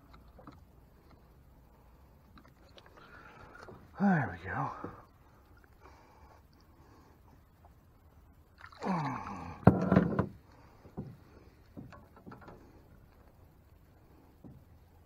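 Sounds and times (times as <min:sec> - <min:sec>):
fish splashing and thrashing: 0:00.0 - 0:04.0, 0:08.4 - 0:14.7
man's wordless vocal sound: 0:03.9 - 0:05.1.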